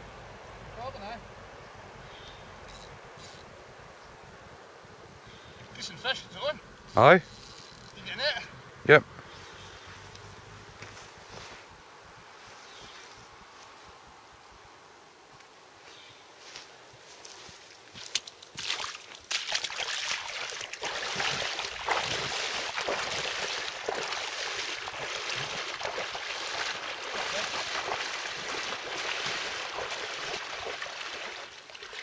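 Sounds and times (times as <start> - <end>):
wading through water splashing: 18.1 - 32.0.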